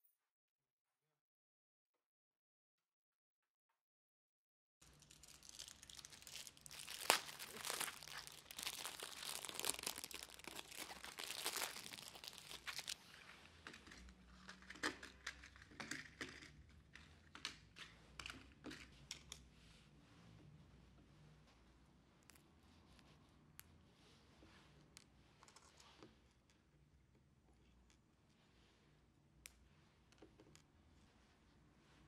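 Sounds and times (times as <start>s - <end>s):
wrapping crinkling and tearing: 4.8s - 15.0s.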